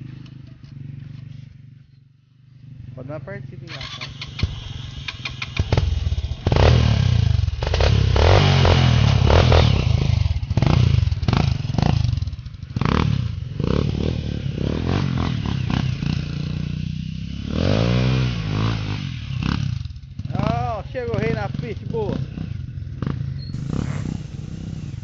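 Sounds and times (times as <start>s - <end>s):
dirt bike engine revving: 3.7s - 20.4s, 22.1s - 25.0s.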